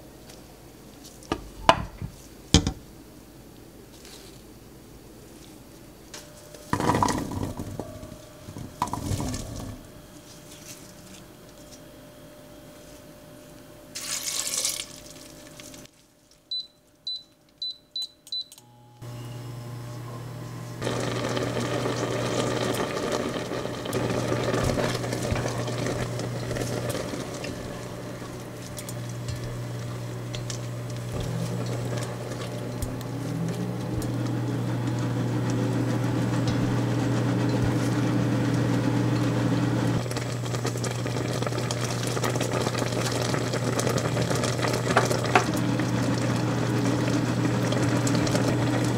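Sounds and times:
cooktop humming: 0:00.0 - 0:48.9
water pouring into a pot: 0:14.0 - 0:15.8, 0:20.8 - 0:29.6, 0:40.0 - 0:48.9
cooktop beeps: 0:16.5 - 0:40.3
crackling bubbling simmer: 0:20.8 - 0:48.9
wooden spatula stirring: 0:22.0 - 0:38.7.

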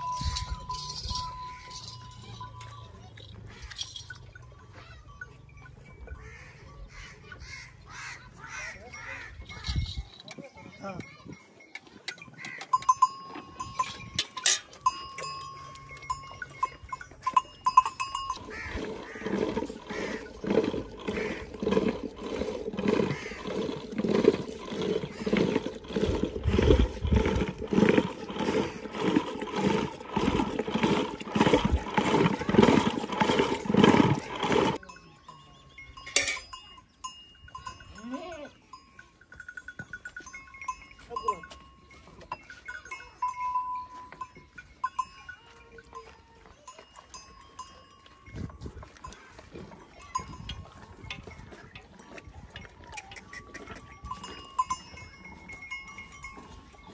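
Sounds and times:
butter churn sloshing: 0:18.2 - 0:34.8.

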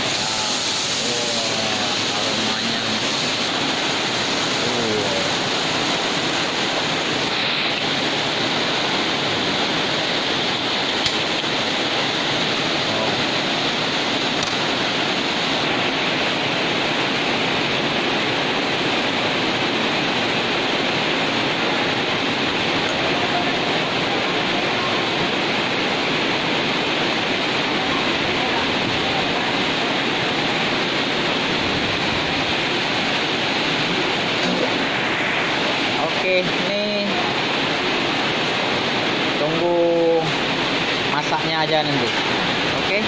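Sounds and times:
wok cooking over gas burner: 0:00.0 - 0:13.7.

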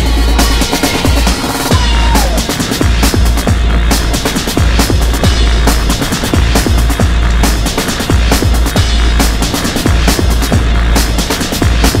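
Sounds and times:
fast driving drum beat: 0:00.0 - 0:12.0
heavy bass: 0:00.0 - 0:12.0.

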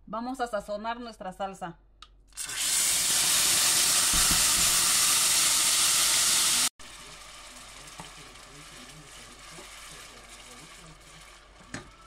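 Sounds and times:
salsa sizzling in hot oil: 0:02.3 - 0:11.8
steam hissing: 0:02.4 - 0:12.0.

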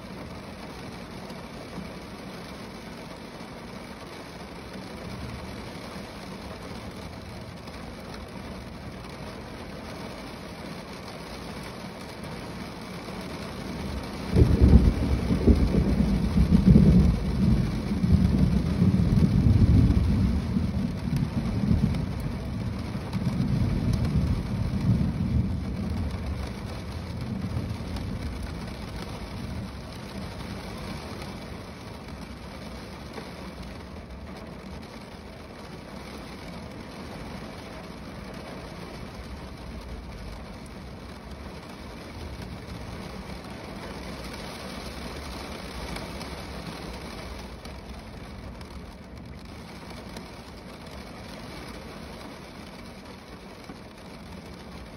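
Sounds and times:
rain on a car roof: 0:00.0 - 0:54.9
thunder rumbling: 0:13.8 - 0:32.6.

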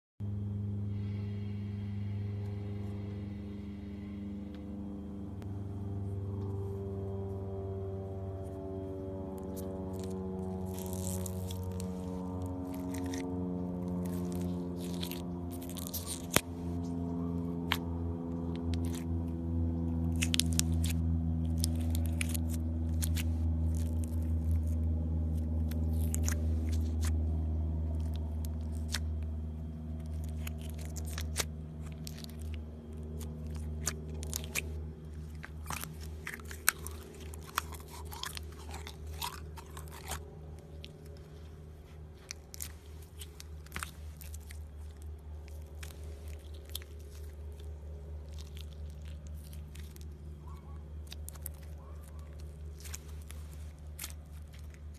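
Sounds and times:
steady low hum: 0:00.2 - 0:54.9
slime crackling and popping: 0:09.4 - 0:16.5, 0:17.6 - 0:19.2, 0:20.1 - 0:41.4, 0:42.2 - 0:54.9.

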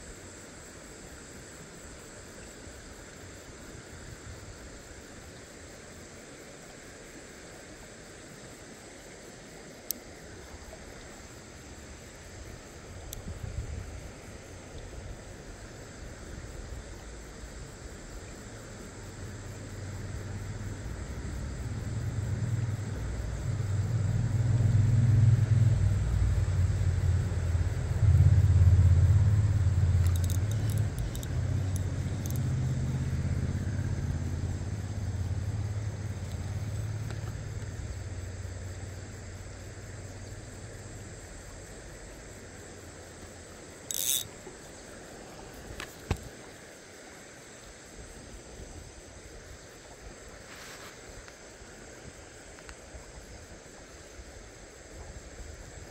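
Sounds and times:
high insect chirring: 0:00.0 - 0:55.9
low rumble: 0:19.2 - 0:41.0
high clicks: 0:30.0 - 0:32.6, 0:43.9 - 0:44.4.

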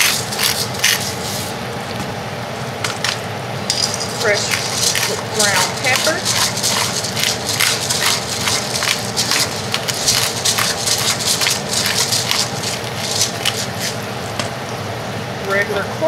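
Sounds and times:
pepper mill grinding: 0:00.0 - 0:01.4, 0:03.0 - 0:14.1.

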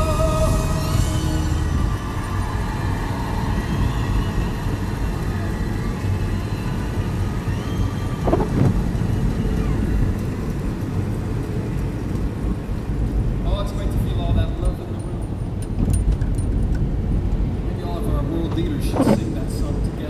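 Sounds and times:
tyres hissing on wet pavement: 0:00.0 - 0:14.2
engine and tyre rumble: 0:00.0 - 0:20.0.

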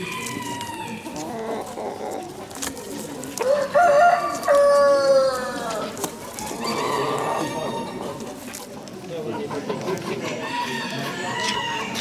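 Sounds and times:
faint background murmur: 0:00.0 - 0:12.0
rooster crowing: 0:03.4 - 0:05.8.

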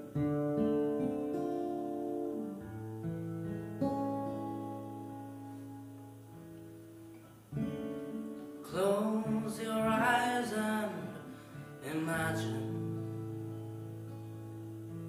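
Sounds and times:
acoustic guitar strumming: 0:00.0 - 0:15.0
man singing: 0:08.6 - 0:13.2.

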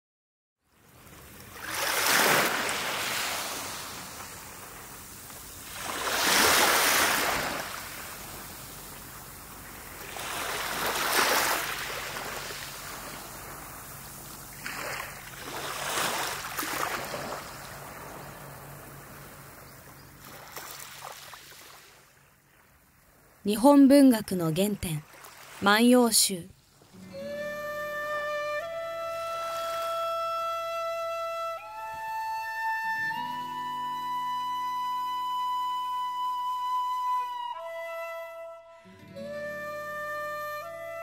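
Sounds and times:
sea waves washing onto shore: 0:00.8 - 0:23.5, 0:25.0 - 0:27.1.

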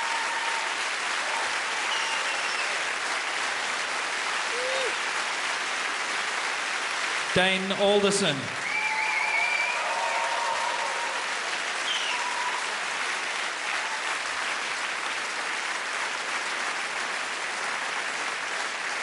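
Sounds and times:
audience applauding: 0:00.0 - 0:19.0
short whistles: 0:01.9 - 0:02.7, 0:11.8 - 0:12.2.

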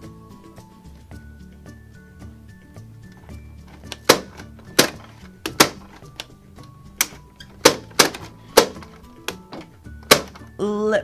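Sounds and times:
soft background music: 0:00.0 - 0:11.0
toy popcorn maker clacking: 0:03.7 - 0:06.3, 0:07.0 - 0:10.5.

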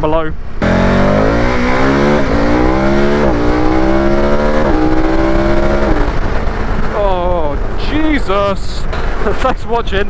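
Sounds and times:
motorcycle engine accelerating: 0:00.6 - 0:07.8.

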